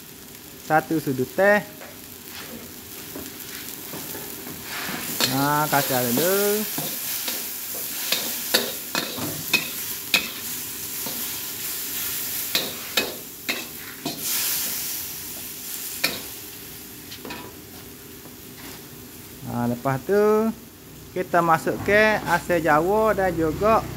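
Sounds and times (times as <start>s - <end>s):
beef sizzling in a wok: 0.0s - 21.4s
metal spatula scraping a wok: 4.1s - 14.9s.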